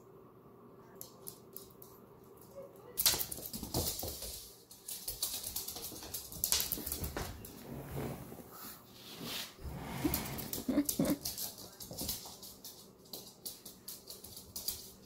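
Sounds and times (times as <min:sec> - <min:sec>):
dog claws clicking on wood floor: 0:01.0 - 0:07.5, 0:10.4 - 0:15.0.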